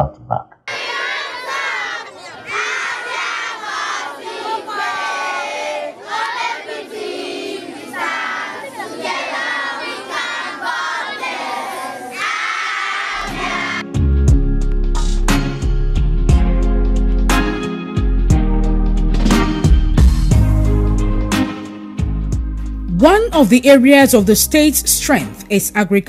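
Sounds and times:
children shouting and chanting: 0.7s - 13.9s
music with low bass: 14.0s - 21.4s, 22.0s - 23.0s.

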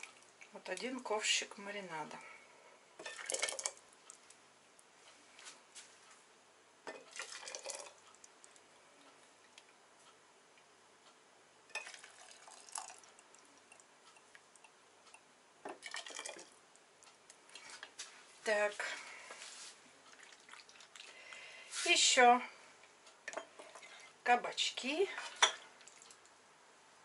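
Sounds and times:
marinade pouring and splashing: 3.0s - 4.3s, 6.9s - 8.6s, 11.7s - 14.6s, 15.7s - 16.6s, 20.1s - 21.2s, 25.8s - 26.3s.

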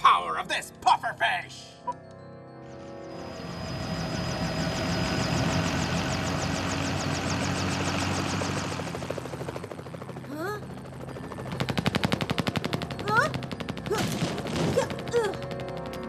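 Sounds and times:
helicopter engine drone: 2.6s - 16.0s
cartoon helicopter rotor chopping: 3.2s - 16.0s.

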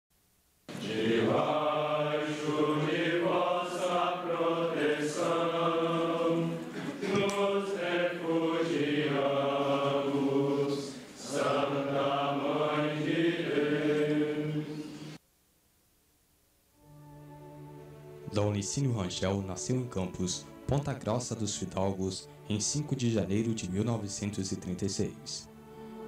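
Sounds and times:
voices singing slow chant: 0.7s - 15.2s.

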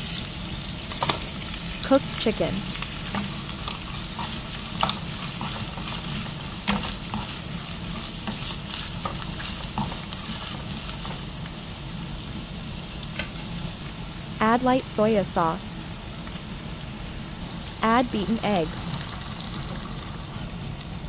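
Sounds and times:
food sizzling in a frying pan: 0.0s - 21.0s
spatula scraping a pan: 3.0s - 11.3s.

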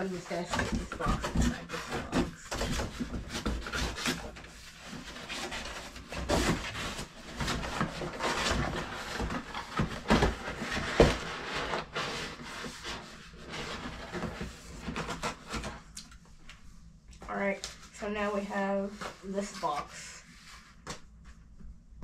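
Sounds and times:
packaging rustling and scraping: 0.0s - 16.0s.

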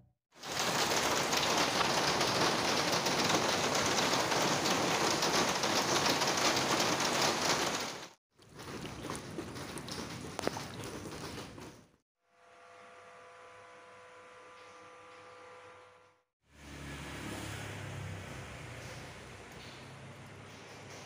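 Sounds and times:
heavy rain on wet paving: 0.4s - 8.1s.

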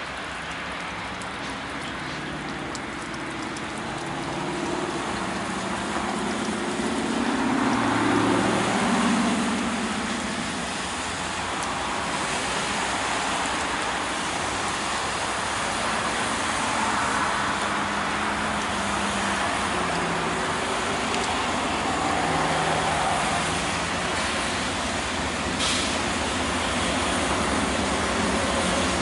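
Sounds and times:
diesel locomotive engine rumble: 0.0s - 16.0s, 17.4s - 29.0s
broad even hiss: 24.2s - 29.0s.

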